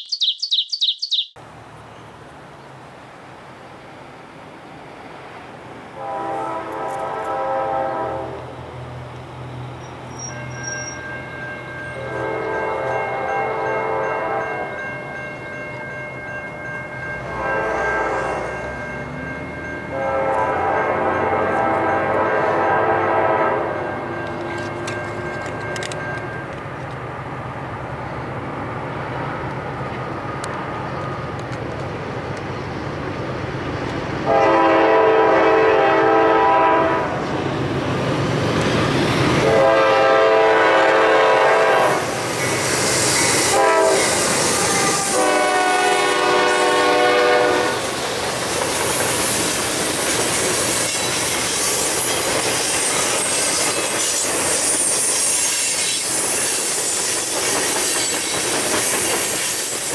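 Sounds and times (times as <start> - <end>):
train wheels on rails: 2.9 - 59.9
locomotive air horn blasts: 6.0 - 8.5, 12.0 - 14.7, 17.3 - 18.6, 19.9 - 24.1, 34.2 - 37.2, 39.4 - 42.1, 43.4 - 47.9.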